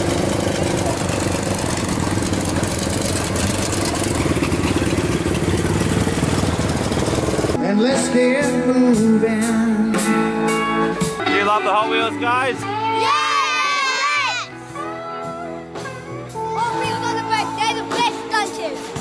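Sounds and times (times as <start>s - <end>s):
truck engine running rough: 0.0s - 7.6s
music with singing voice: 7.6s - 13.0s.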